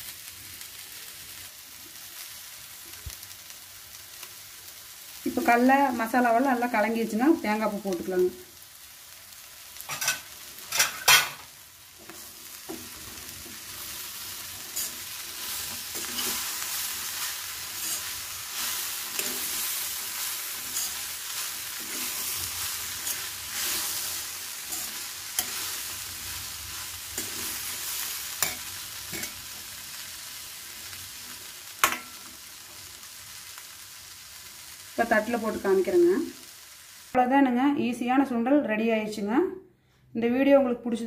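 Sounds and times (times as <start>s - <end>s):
frying sizzle: 0.0s - 37.3s
metal spatula scraping pan: 9.9s - 26.0s, 26.8s - 29.5s.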